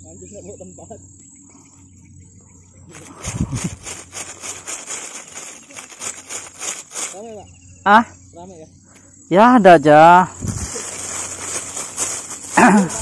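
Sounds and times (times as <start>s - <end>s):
insects chirping: 0.0s - 13.0s
rustling and scraping: 2.7s - 7.6s, 10.3s - 13.0s.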